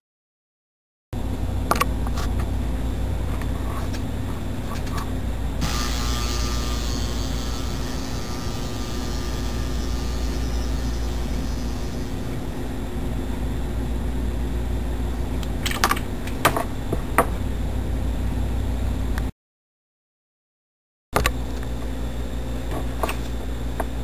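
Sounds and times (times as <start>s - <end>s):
transformer humming: 1.2s - 19.2s.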